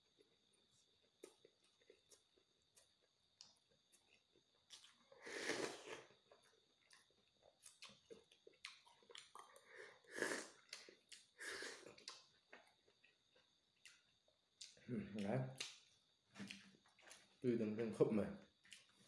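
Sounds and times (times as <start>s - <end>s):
soft chewing: 0.0s - 17.5s, 18.4s - 19.0s
slurping from a spoon: 5.2s - 6.2s, 9.8s - 10.6s
wet mouth clicks: 15.6s - 15.8s.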